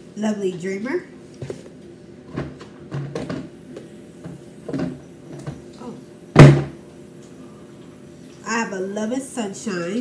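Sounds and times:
loud thump: 0:06.4 - 0:06.8.

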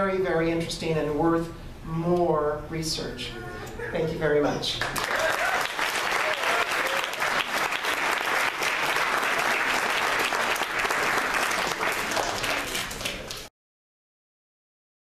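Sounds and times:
audience applauding: 0:04.8 - 0:13.5.

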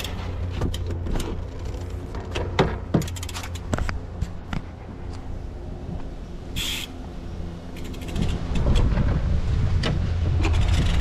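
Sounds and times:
steady low hum: 0:00.0 - 0:11.0
wind buffeting microphone: 0:07.3 - 0:11.0
bike hub ticking clicks: 0:07.8 - 0:08.8.

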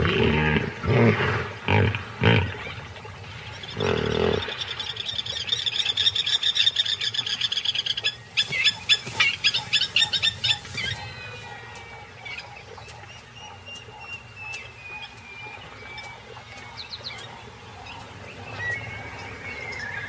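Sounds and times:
plovers calling sharply: 0:08.4 - 0:19.1.

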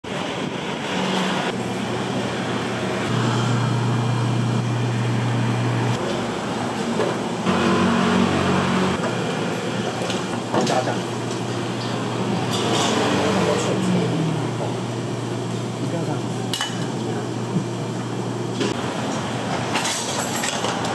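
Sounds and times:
low machine hum: 0:01.5 - 0:09.0.

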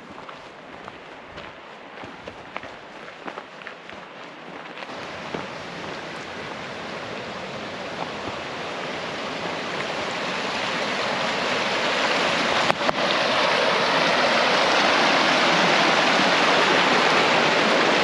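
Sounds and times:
footsteps on dirt trail: 0:00.0 - 0:10.5
rushing creek: 0:00.0 - 0:18.0.

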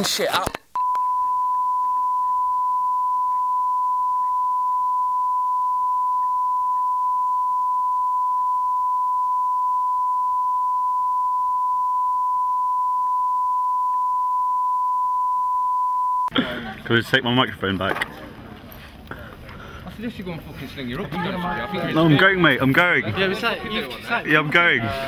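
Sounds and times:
steady sine tone: 0:00.8 - 0:16.3.

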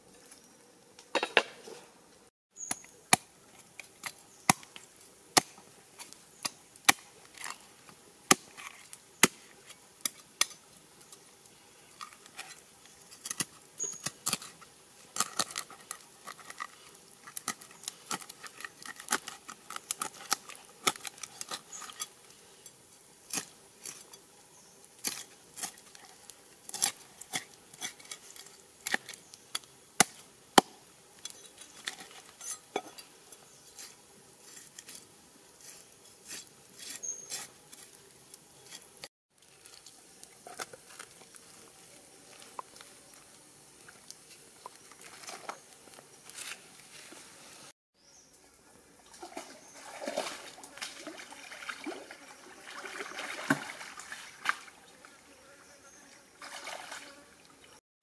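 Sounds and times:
knife scraping fish: 0:35.6 - 0:38.0.

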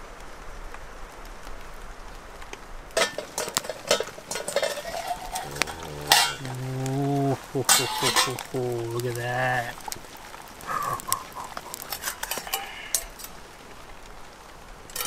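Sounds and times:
faint steady hiss: 0:00.0 - 0:15.0
metal cookware clinking and scraping: 0:03.0 - 0:09.6, 0:11.7 - 0:13.4
person humming: 0:05.3 - 0:09.8, 0:10.6 - 0:11.9.

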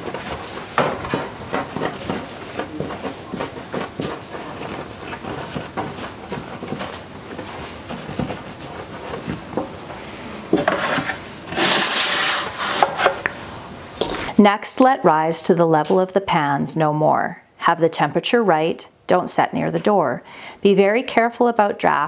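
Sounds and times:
bread pans knocking on counter: 0:00.0 - 0:08.5
hands rubbing bread dough: 0:00.0 - 0:14.4.

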